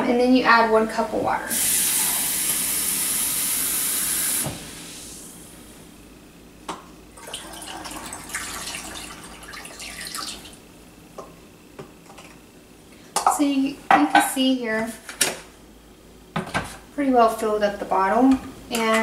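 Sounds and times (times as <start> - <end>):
faucet running water into cup: 1.5 - 4.5, 7.2 - 10.6
water pouring through funnel: 7.2 - 10.6.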